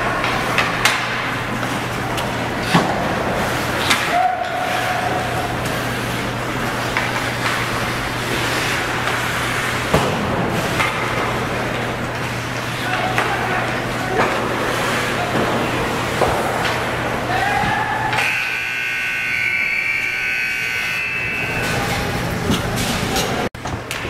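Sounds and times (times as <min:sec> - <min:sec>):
hockey sticks and puck clacking: 0:00.0 - 0:18.9
low hum of rink: 0:00.0 - 0:24.0.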